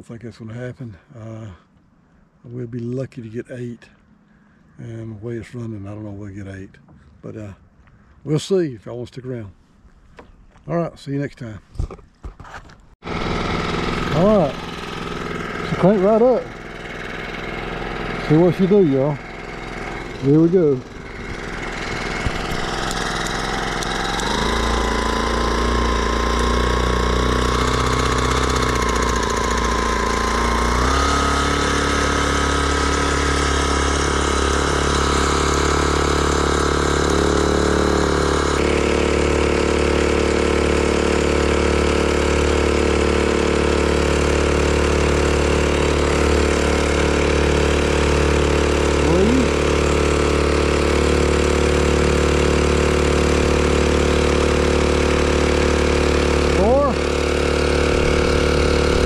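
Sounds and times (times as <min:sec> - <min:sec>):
outboard motor running: 0:13.0 - 0:59.0.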